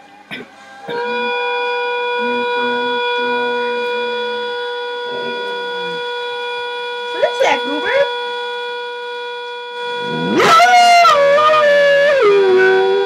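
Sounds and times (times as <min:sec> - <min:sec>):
kettle whistling: 0:04.0 - 0:13.0
dog howling: 0:10.1 - 0:13.0.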